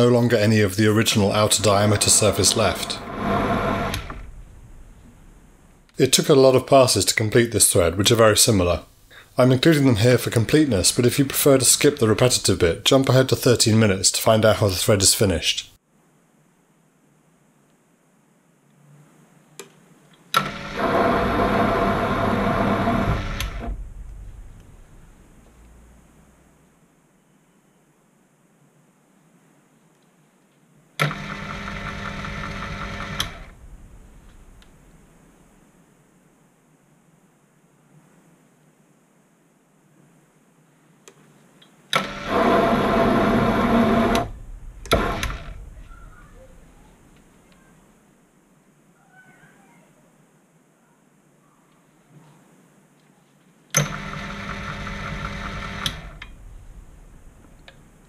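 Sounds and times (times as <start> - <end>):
lathe running: 1.3 - 5.7, 20.4 - 24.0, 31.0 - 34.8, 42.0 - 46.8, 53.8 - 57.9
lathe switch click: 33.0 - 33.6, 44.0 - 45.8, 55.8 - 56.4.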